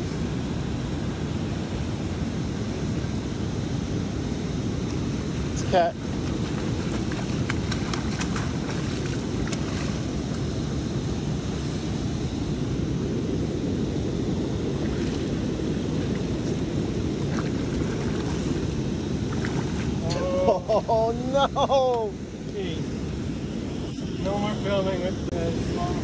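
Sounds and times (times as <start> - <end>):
wind buffeting microphone: 0.0 - 21.2
churning river water rushing: 5.1 - 10.7, 14.7 - 20.8.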